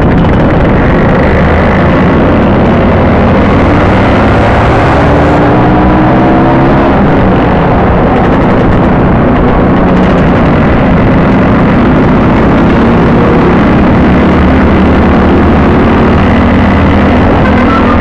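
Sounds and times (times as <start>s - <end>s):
wind rush over microphone: 0.0s - 18.0s
scooter engines running: 14.4s - 18.0s.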